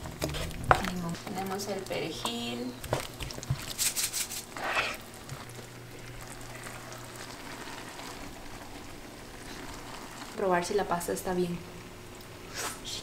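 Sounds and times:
sauce sizzling in a skillet: 0:00.4 - 0:12.9
wooden spoon scraping a pan: 0:02.3 - 0:05.5.

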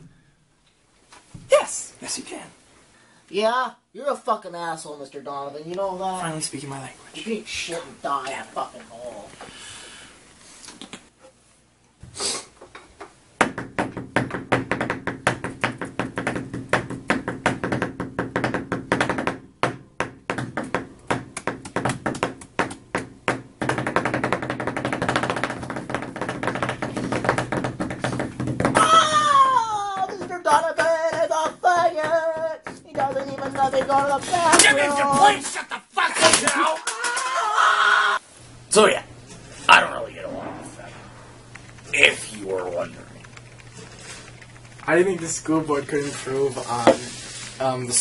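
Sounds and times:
hands tapping and knocking: 0:12.6 - 0:35.3
man wailing: 0:28.8 - 0:38.2
steady low hum: 0:38.2 - 0:48.0.

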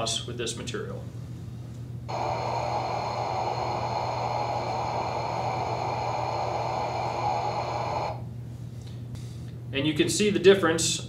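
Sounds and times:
loudspeaker test noise hiss: 0:02.1 - 0:08.2.

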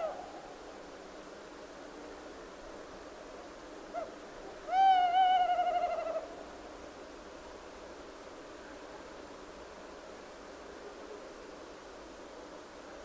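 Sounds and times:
owl hooting: 0:00.0 - 0:00.4, 0:03.9 - 0:06.4
faint steady hiss: 0:00.0 - 0:13.0.

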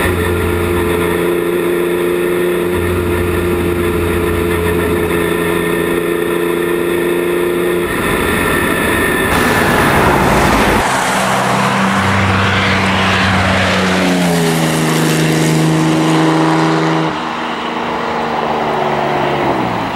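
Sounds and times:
race car engine driving past: 0:07.8 - 0:19.9.

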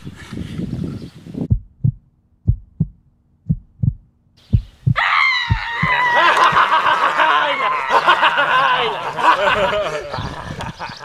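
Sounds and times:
heartbeat double thumps: 0:01.4 - 0:06.0.

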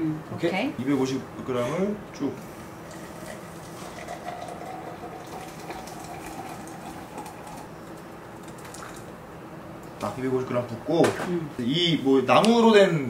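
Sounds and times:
water pouring into glass: 0:02.8 - 0:07.7, 0:08.4 - 0:09.1.

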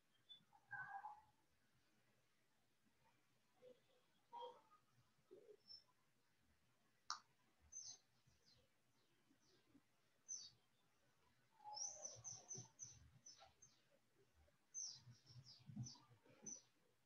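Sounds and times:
bird chirps: 0:00.1 - 0:01.2, 0:10.3 - 0:10.7, 0:11.6 - 0:13.9, 0:14.7 - 0:16.8.

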